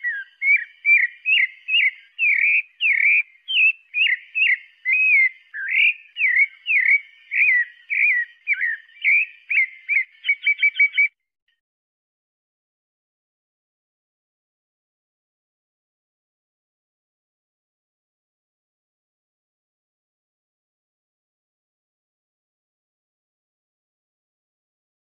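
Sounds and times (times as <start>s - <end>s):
thrush singing whistled notes: 0.0s - 11.2s.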